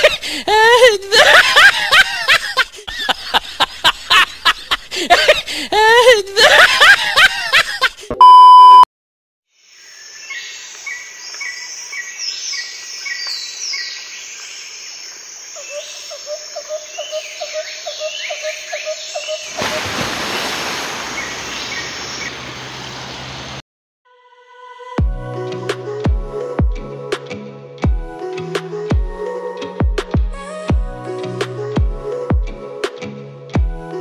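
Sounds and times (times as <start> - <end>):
electronic bleep tone: 8.2 - 8.9
birds chirping and trilling: 9.6 - 19.6, 20.4 - 22.9
river water rushing over rocks: 19.5 - 23.6.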